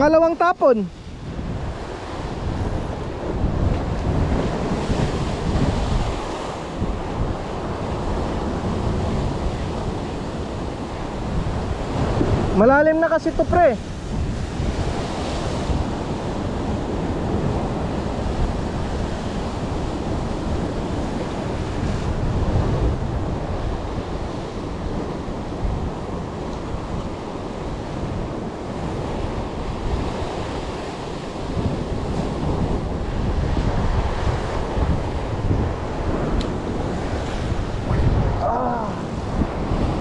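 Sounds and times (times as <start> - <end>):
wind buffeting microphone: 0.0 - 40.0
surf breaking against rocks: 26.0 - 40.0.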